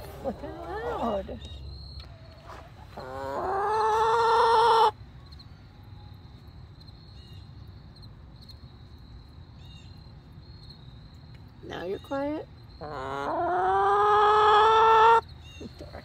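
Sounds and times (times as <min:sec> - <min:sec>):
chicken calling loudly: 0:02.5 - 0:05.0, 0:12.8 - 0:15.2.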